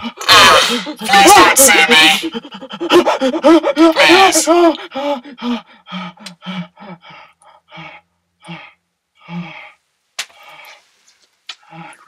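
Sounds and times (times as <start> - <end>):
person panting and gasping: 0.0 - 10.9, 11.6 - 12.0.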